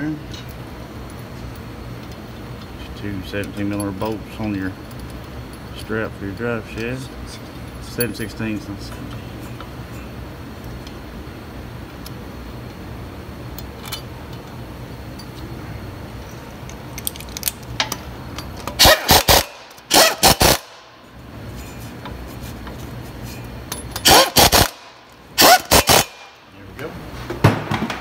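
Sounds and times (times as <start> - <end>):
steady low hum: 0.0 - 28.0
impact wrench bursts: 18.7 - 20.9, 23.7 - 26.4.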